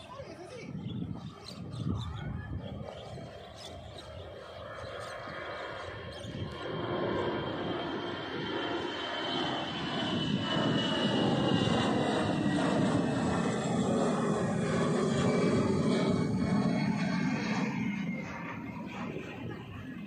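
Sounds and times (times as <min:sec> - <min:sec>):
high engine whine: 0:00.0 - 0:20.0
jet airliner engine noise: 0:00.0 - 0:20.0.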